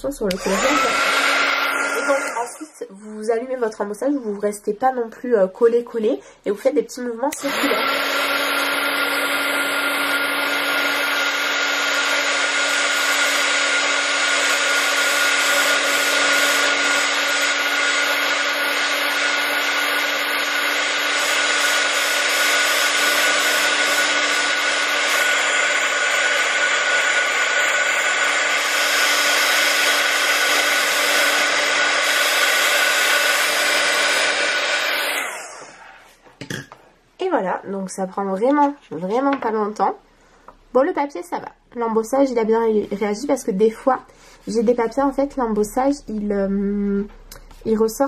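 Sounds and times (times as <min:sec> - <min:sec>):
heat gun fan whirring: 0:00.1 - 0:02.8, 0:07.3 - 0:36.0.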